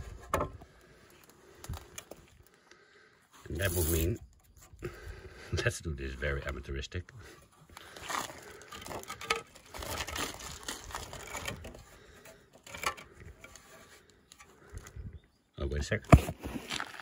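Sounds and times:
roof tile scraping on concrete: 3.5 - 4.6, 7.2 - 14.8.

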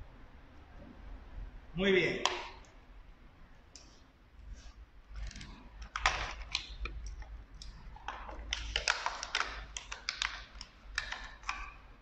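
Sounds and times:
tape crinkling rustles: 4.6 - 11.8.

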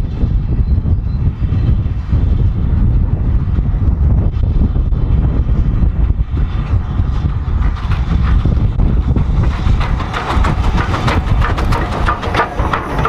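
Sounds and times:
wind rumble on microphone: 0.0 - 13.0
steam train passing: 7.4 - 13.0
wheels clattering over rail joints: 7.6 - 13.0.

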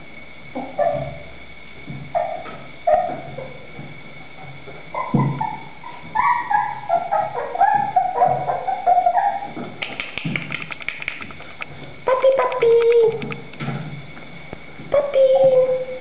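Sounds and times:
puppies whimpering and yipping: 5.0 - 9.6
quick clicks: 9.8 - 13.6.

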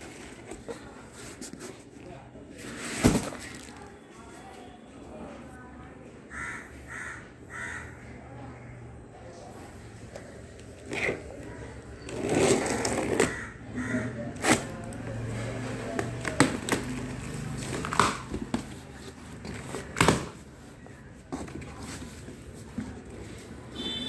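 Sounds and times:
packing tape slit and pulled: 14.4 - 14.8
cardboard cracking: 15.9 - 20.5.

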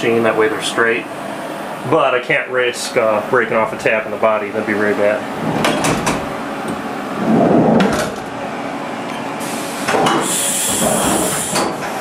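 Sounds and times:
machine clunks and clicks: 5.5 - 6.8.

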